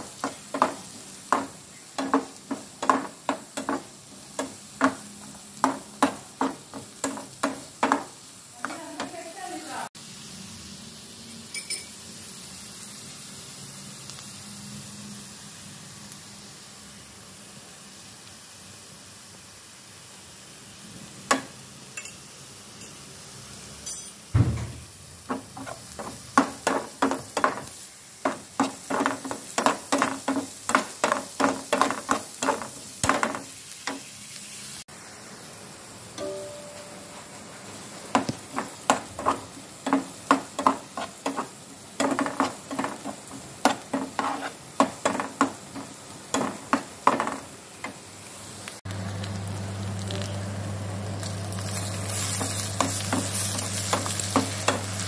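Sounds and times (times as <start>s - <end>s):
onions sizzling in oil: 0.0s - 55.0s
thump: 24.4s - 24.9s
metal spatula scraping a pan: 38.5s - 46.6s.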